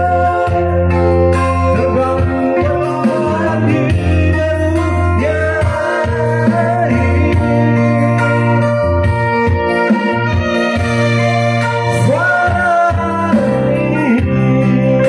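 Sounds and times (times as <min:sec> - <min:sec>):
man singing into microphone: 0:00.0 - 0:08.8, 0:10.2 - 0:15.0
electric guitar playing: 0:00.0 - 0:15.0
electronic keyboard playing: 0:00.0 - 0:15.0.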